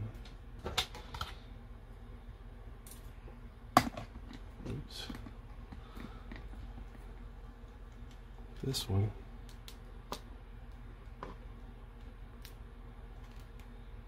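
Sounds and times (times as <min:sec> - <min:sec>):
plastic parts being handled: 0:13.1 - 0:13.8.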